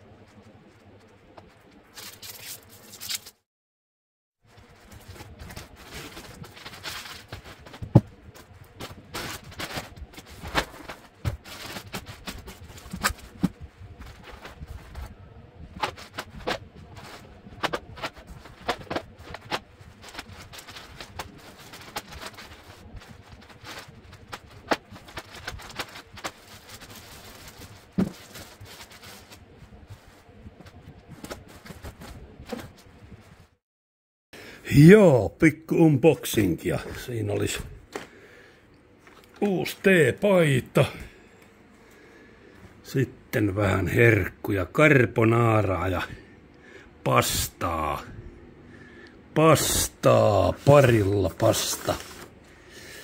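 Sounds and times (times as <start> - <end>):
paper and cardboard rustling: 0.2 - 3.4, 4.5 - 33.5, 49.6 - 52.4.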